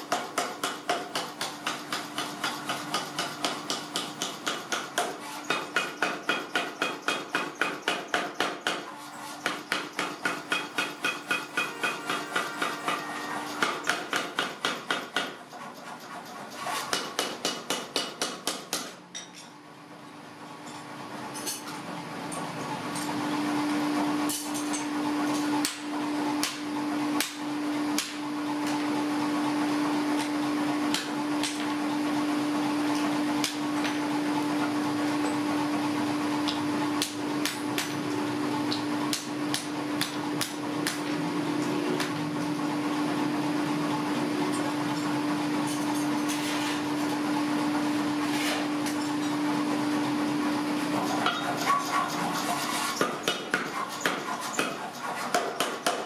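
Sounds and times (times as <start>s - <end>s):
hammer striking on anvil: 0.1s - 15.4s, 16.9s - 19.3s.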